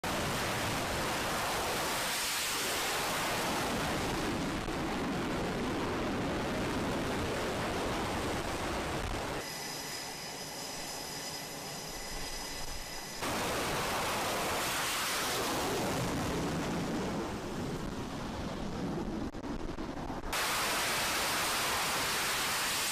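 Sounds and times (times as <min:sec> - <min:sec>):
jet engines at full power: 0:00.0 - 0:22.9
steady high whines: 0:07.3 - 0:22.9.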